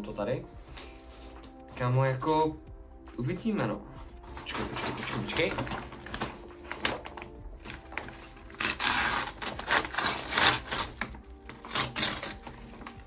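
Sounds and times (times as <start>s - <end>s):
paper packaging rustling: 4.0s - 13.0s.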